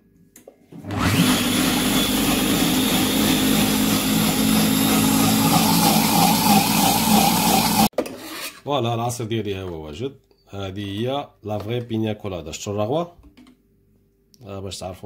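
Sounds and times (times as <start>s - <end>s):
food processor whirring: 0.8s - 7.9s.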